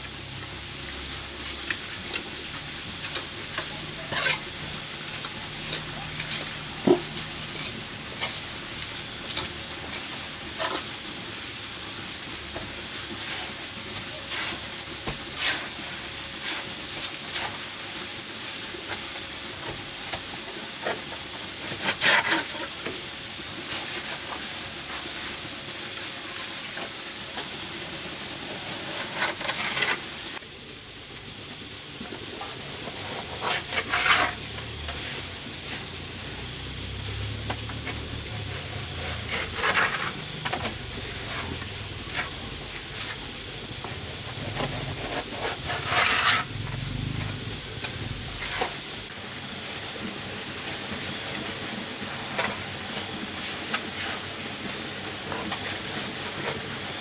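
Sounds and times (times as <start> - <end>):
steady hiss: 0.0 - 57.0
trowel scraping mortar: 1.0 - 11.0, 21.6 - 22.8, 28.6 - 30.1, 32.8 - 35.2, 37.7 - 46.6.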